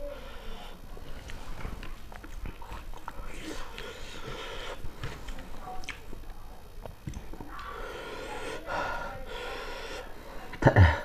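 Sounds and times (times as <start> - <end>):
person breathing heavily: 0.0 - 1.8, 3.2 - 5.4, 7.5 - 11.0
fingers squelching food: 1.2 - 8.6.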